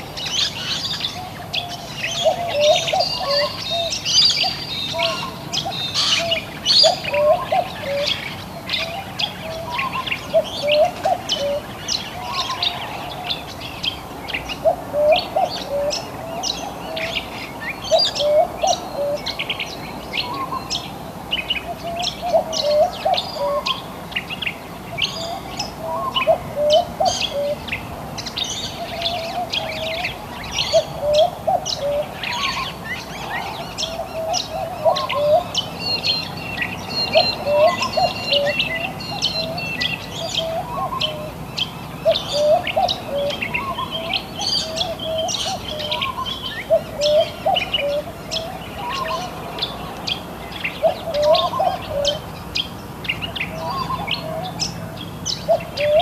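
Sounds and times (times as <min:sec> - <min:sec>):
birds chirping and calling: 0:00.0 - 0:56.0
low hooked bird call: 0:42.0 - 0:49.4.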